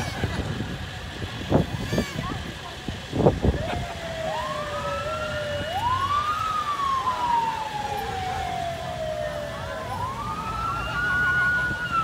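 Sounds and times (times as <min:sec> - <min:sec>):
emergency vehicle siren wailing: 0:03.1 - 0:12.0.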